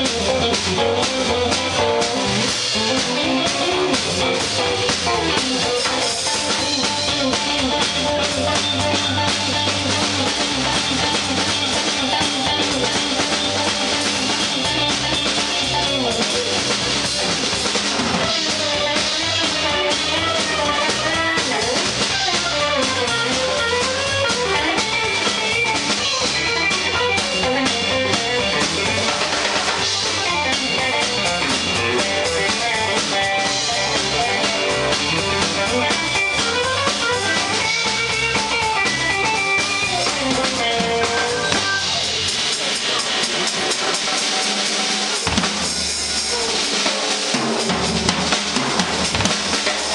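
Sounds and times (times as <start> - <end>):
bass guitar: 0.0 - 49.9
drum kit: 0.0 - 49.9
electric guitar solo: 18.2 - 42.3.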